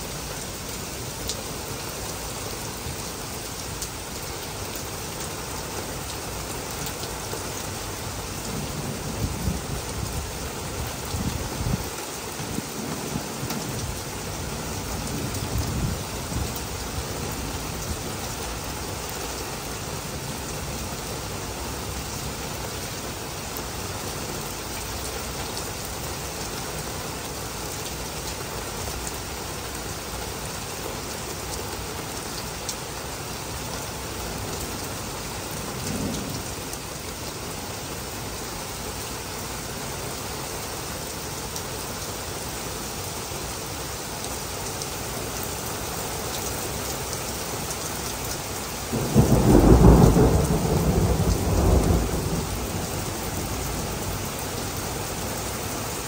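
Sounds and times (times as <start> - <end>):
heavy rain falling: 0.0 - 56.0
thunder rumbling: 48.9 - 54.3.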